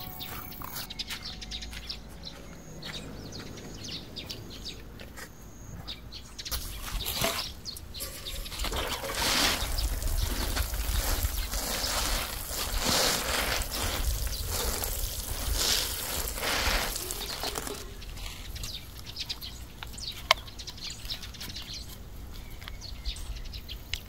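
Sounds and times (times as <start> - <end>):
birds chirping: 0.0 - 24.0
water sprinkling from watering can: 6.6 - 19.2.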